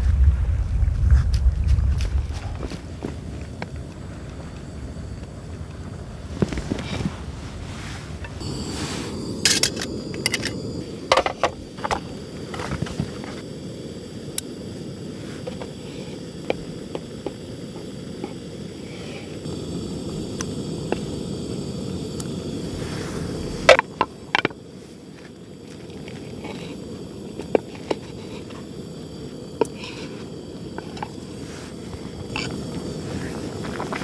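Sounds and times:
wind rumble on microphone: 0:00.0 - 0:10.9.

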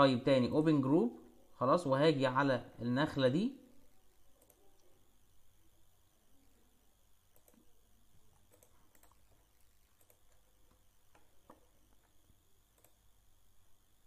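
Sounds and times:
computer mouse clicks: 0:04.3 - 0:04.9, 0:07.3 - 0:07.7, 0:08.3 - 0:13.1.

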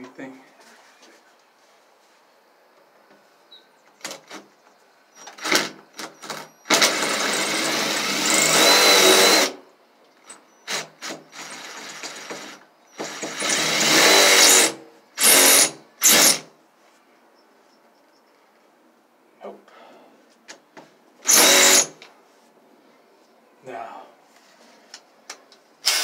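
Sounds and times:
cordless drill driving screw: 0:05.2 - 0:09.6, 0:10.3 - 0:16.4, 0:21.2 - 0:22.0.

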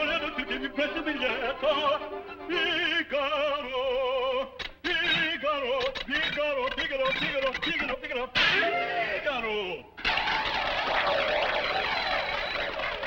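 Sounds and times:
man singing operatically: 0:00.0 - 0:09.9.

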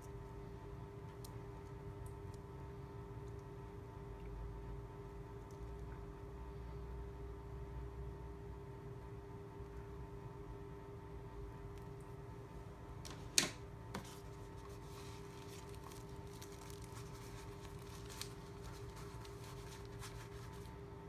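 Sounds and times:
steady hum: 0:00.0 - 0:21.0
cable and pouch rustling: 0:14.0 - 0:20.7.

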